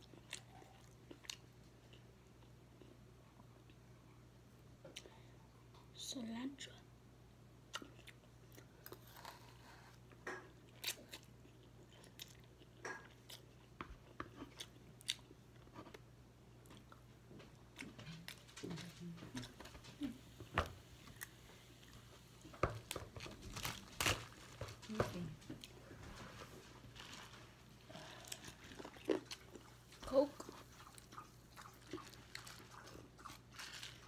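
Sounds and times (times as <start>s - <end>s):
person chewing: 0.0s - 3.8s, 7.7s - 17.1s, 26.9s - 34.0s.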